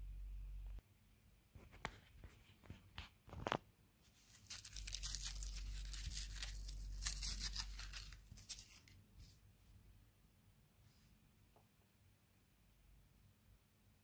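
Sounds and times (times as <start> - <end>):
tissue paper crinkling and tearing: 4.1 - 9.0.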